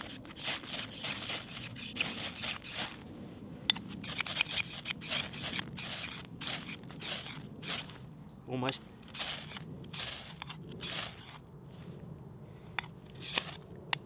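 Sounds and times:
knife rasping on ferro rod: 0.0s - 3.0s, 3.8s - 8.0s, 9.1s - 11.4s, 13.2s - 13.6s.

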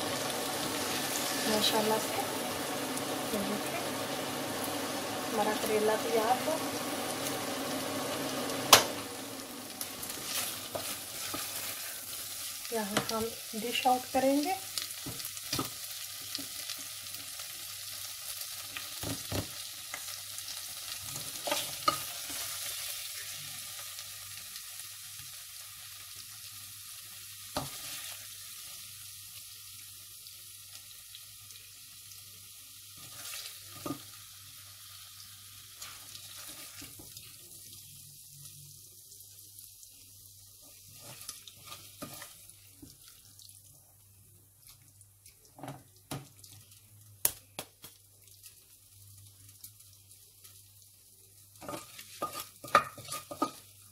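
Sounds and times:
vegetables sizzling in oil: 0.0s - 53.9s
wooden spatula scraping pot: 51.6s - 53.6s.

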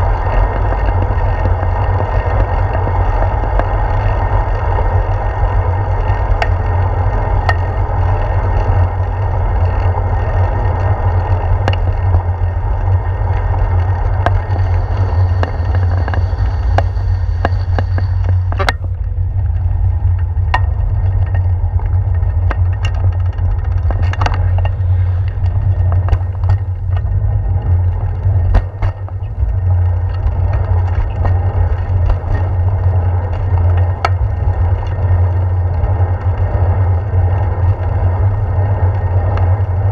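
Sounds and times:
bicycle tyre and road noise: 0.0s - 39.9s
wind rumble on microphone: 0.0s - 39.9s
sharp clicks and knocks: 6.1s - 8.0s, 10.8s - 36.5s.

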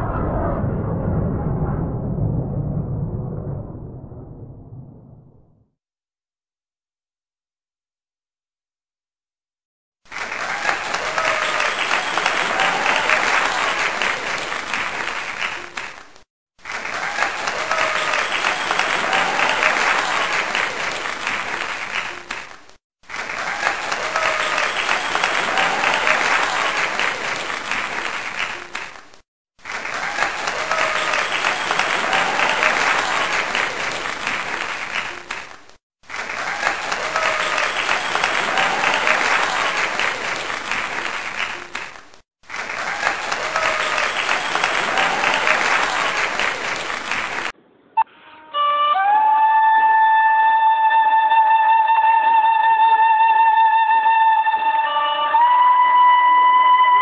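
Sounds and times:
crowd applause: 10.1s - 47.6s.

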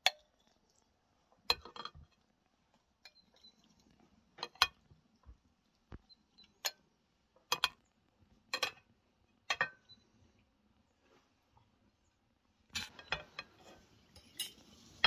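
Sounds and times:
metal spoon clinking on glass dish: 14.2s - 14.7s.

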